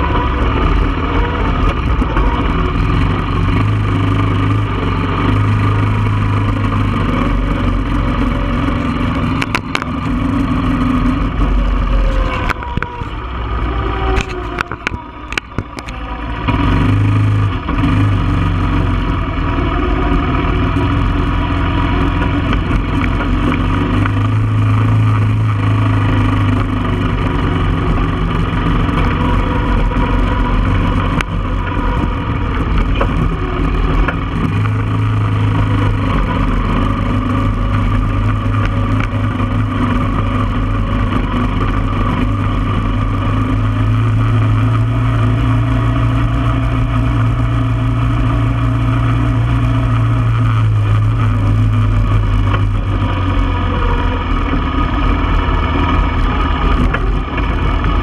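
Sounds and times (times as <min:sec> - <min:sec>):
atv engine running: 0:00.0 - 0:58.0.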